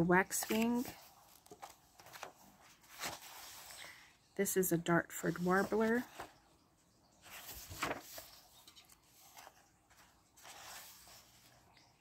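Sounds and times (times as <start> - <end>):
paper pages turning: 0.0 - 3.8, 5.3 - 6.4, 7.2 - 11.7.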